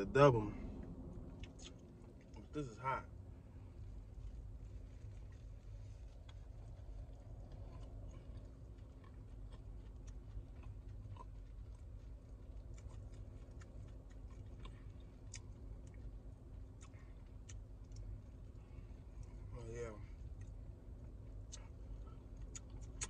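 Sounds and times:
low steady rumble: 0.0s - 23.0s
man chewing food: 0.7s - 2.5s, 3.8s - 23.0s
wet mouth clicks: 1.3s - 1.9s, 22.4s - 23.0s.

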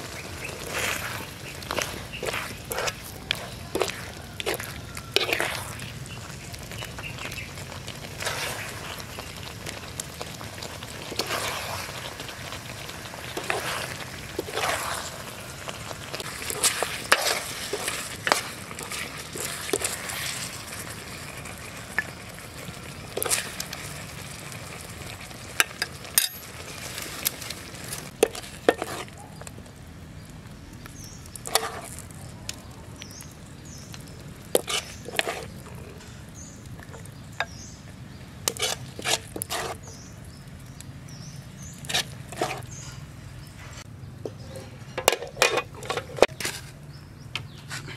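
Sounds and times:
metal ladle scraping wok: 0.0s - 6.5s, 10.4s - 22.1s, 23.1s - 24.0s, 25.6s - 29.2s, 31.4s - 32.1s, 34.5s - 36.2s, 38.4s - 40.0s, 41.7s - 46.8s
stir-fry sizzling in a wok: 0.0s - 29.2s.

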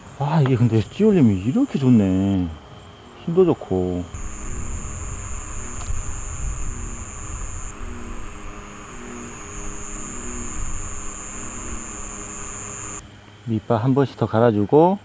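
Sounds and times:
high-pitched insect trill: 1.3s - 13.0s
wind rumbling on microphone: 4.2s - 13.0s.

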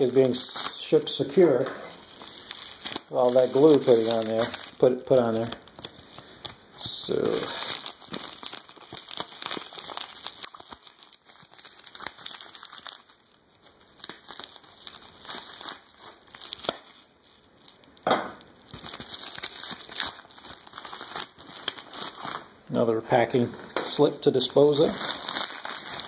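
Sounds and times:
paper rustling and crinkling: 0.0s - 17.8s, 24.0s - 26.0s.

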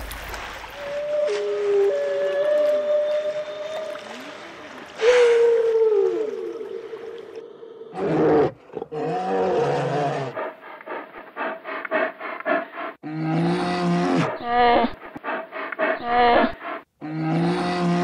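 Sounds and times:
whale moan: 0.9s - 10.4s, 15.9s - 18.0s
polar bear groaning: 7.9s - 10.4s, 13.0s - 15.0s, 15.8s - 18.0s.

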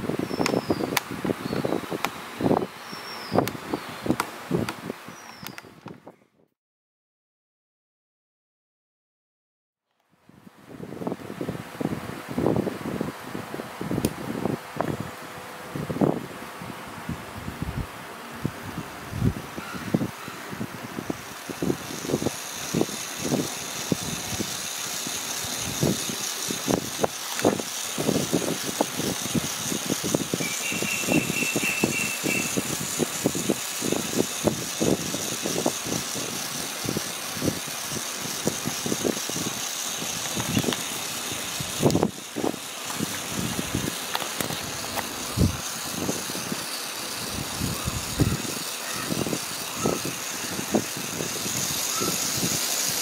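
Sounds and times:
steady high hiss: 0.0s - 5.8s, 10.7s - 53.0s
model locomotive wheels clicking: 21.1s - 53.0s
high chirps: 30.3s - 32.8s.

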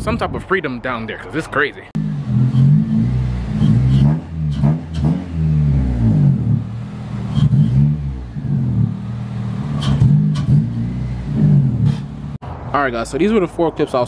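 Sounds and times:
car engine running: 2.0s - 12.4s.

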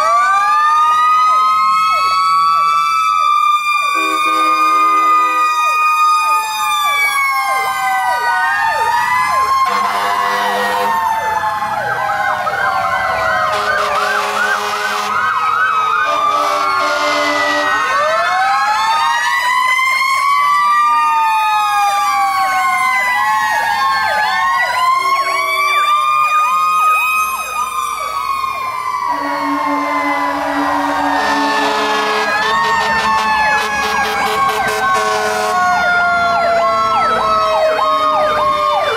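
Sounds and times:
fire truck sirens wailing: 0.0s - 38.9s
horn blasts: 4.0s - 5.4s, 9.7s - 11.0s, 13.5s - 15.2s, 16.1s - 17.8s, 29.1s - 35.6s.

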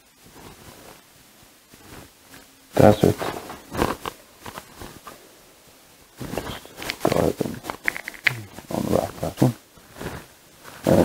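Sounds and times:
cable clicks and rustles: 3.1s - 5.2s, 6.2s - 8.7s.

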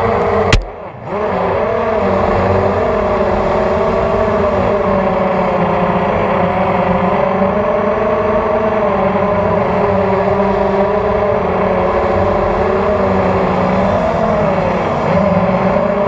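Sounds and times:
sharp snap against tree: 0.5s - 0.7s.

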